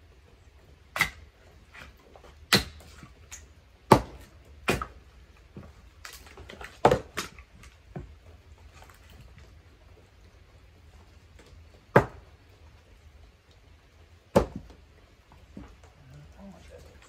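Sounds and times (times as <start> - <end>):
axe striking firewood: 0.9 - 8.1, 11.9 - 12.4, 14.3 - 14.8.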